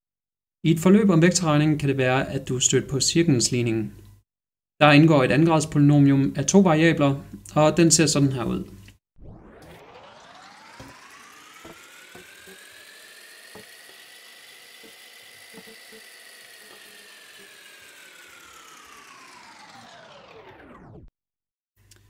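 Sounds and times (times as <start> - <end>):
whirring with gliding pitch: 9.2 - 21.1.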